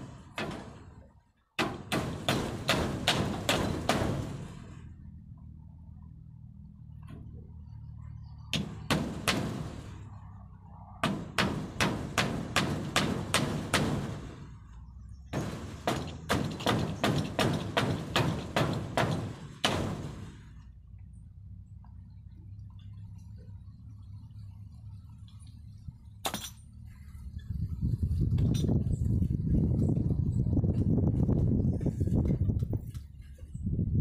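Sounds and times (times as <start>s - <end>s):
hammer striking wooden frame: 0.0s - 1.0s, 1.6s - 4.6s, 8.5s - 10.0s, 11.0s - 14.4s, 15.3s - 20.5s.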